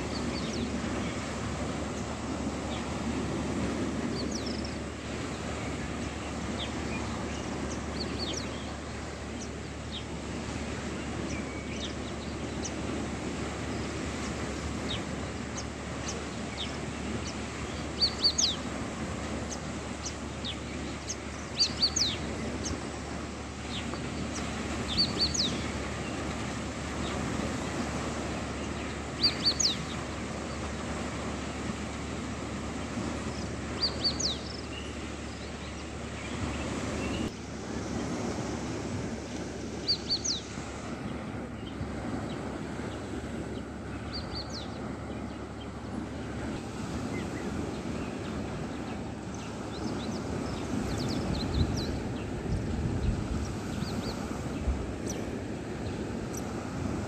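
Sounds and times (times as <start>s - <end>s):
small waves on shore: 0.0s - 57.0s
bird chirping: 19.5s - 22.8s, 23.7s - 26.3s, 28.6s - 30.0s, 33.3s - 37.3s.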